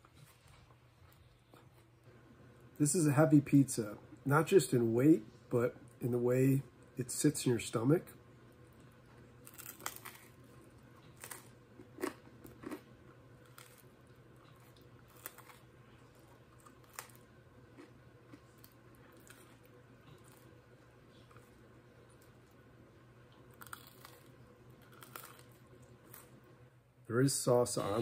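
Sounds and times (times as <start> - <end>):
pizza crust crunching: 9.0 - 22.6, 23.3 - 26.4.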